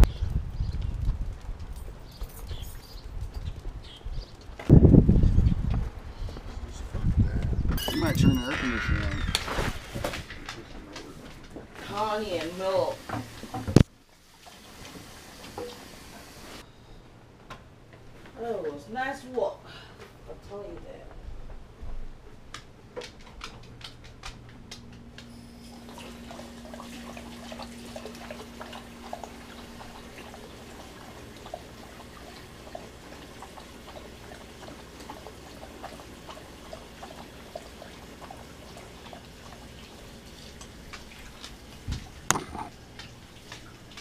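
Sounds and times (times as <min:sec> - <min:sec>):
dog lapping water: 0:25.8 - 0:44.0.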